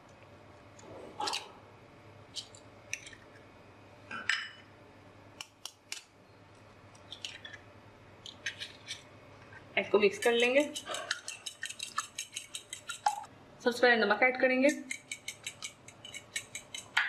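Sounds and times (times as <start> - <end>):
eggs cracking against bowl: 10.2 - 13.3.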